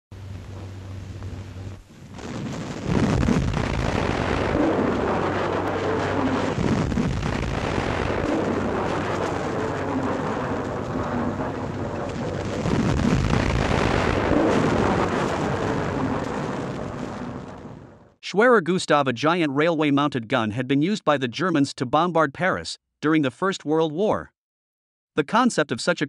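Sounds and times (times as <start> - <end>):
long rolling rumble: 0.1 - 18.2
heavy gun blast: 2.2 - 17.8.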